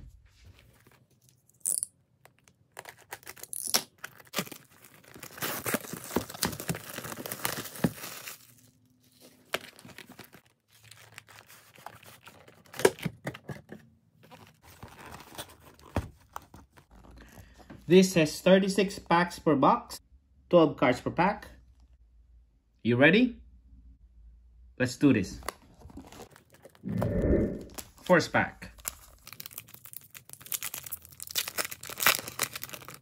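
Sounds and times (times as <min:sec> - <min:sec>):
shrink wrap crackling: 0:02.2 - 0:12.6, 0:28.7 - 0:33.0.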